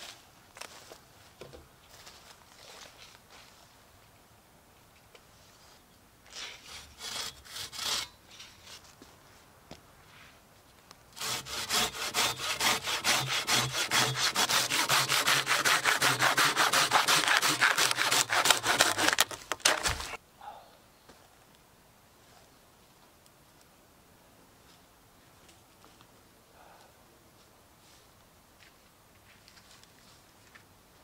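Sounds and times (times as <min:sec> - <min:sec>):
hand saw rasping through log: 0:06.6 - 0:08.2, 0:11.2 - 0:20.2
log falling thud: 0:19.0 - 0:20.2.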